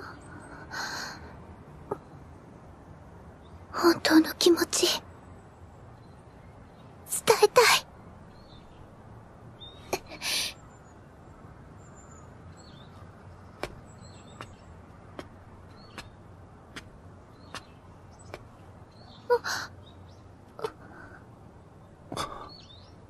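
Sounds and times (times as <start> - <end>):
footsteps on stone paving: 13.6 - 18.6
faint bird chirps: 17.3 - 23.0.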